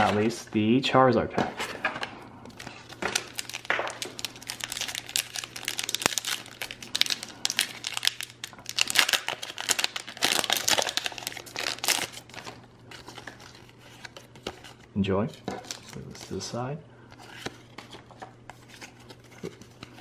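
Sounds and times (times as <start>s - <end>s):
foil wrapper crinkling: 2.5s - 14.2s
foil wrapper tearing: 2.8s - 12.5s.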